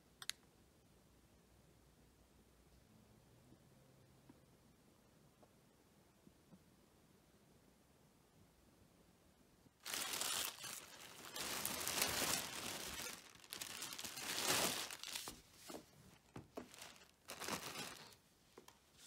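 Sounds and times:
small clicks: 0.2s - 0.5s
jacket and wrapping crinkling: 9.8s - 18.2s.

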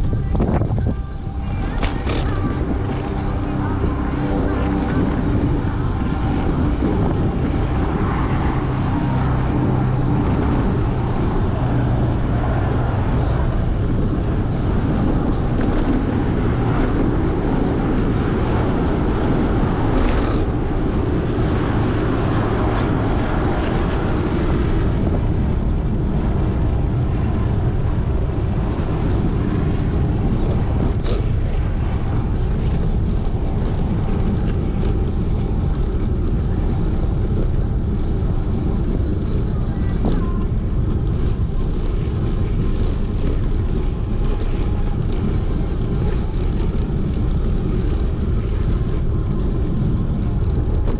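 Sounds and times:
bicycle riding noise: 0.0s - 50.9s
wind rumble on microphone: 0.0s - 50.9s.

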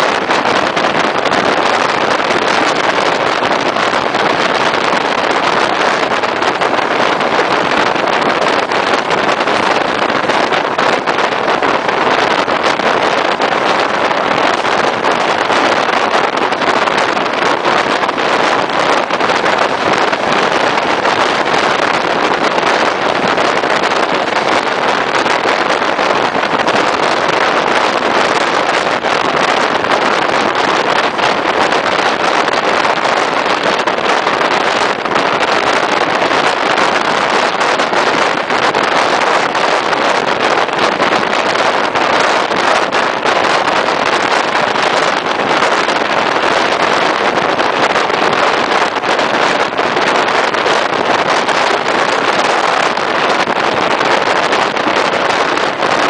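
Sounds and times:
wind rushing over microphone: 0.0s - 56.0s.

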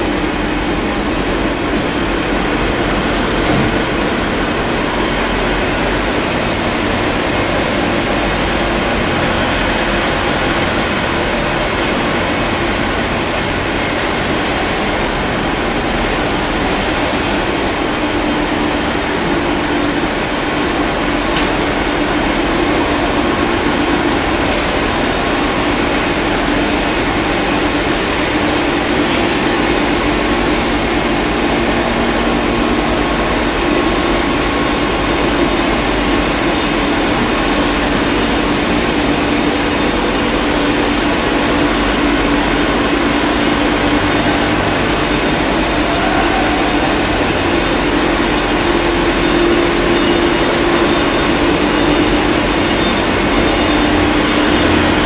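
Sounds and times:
machinery running with hum: 0.0s - 55.0s.

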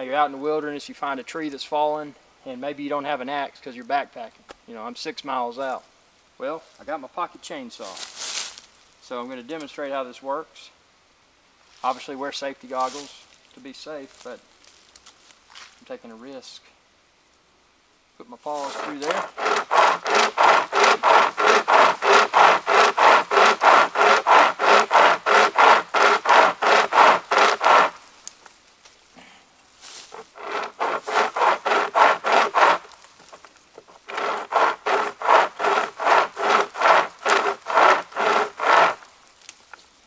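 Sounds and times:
hand chainsaw sawing log: 18.5s - 28.0s, 30.0s - 39.1s.

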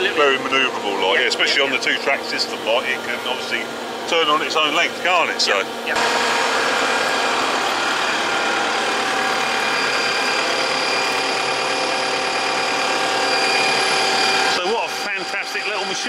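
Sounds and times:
diesel engine running: 1.3s - 16.0s
faint high whine: 7.1s - 16.0s.

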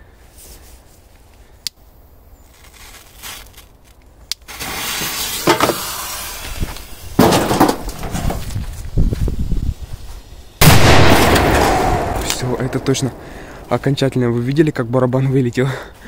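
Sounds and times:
firecracker bang: 10.6s - 13.7s.

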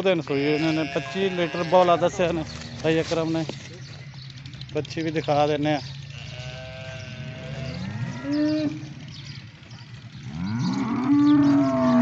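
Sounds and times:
cattle mooing: 0.3s - 3.0s, 6.1s - 8.9s, 10.3s - 12.0s.

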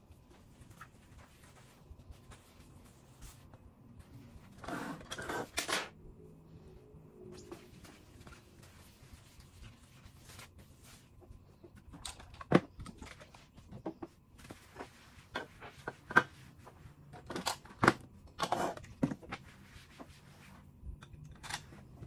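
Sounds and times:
cloth rubbing on counter: 0.2s - 5.0s, 7.4s - 11.6s, 14.4s - 17.0s, 19.3s - 20.8s.

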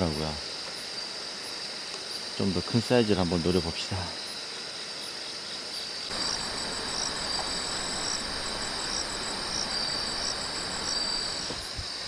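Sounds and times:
background hiss: 0.0s - 12.0s
insects trilling: 0.0s - 12.0s
rapid pulsed chirping: 6.1s - 12.0s.

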